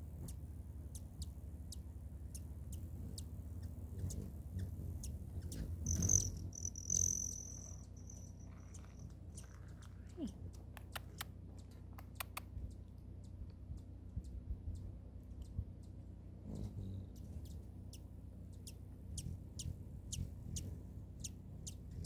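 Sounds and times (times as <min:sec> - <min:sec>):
hummingbird wing buzz: 0:00.0 - 0:10.7, 0:16.4 - 0:22.0
hummingbird chip notes: 0:00.0 - 0:22.0.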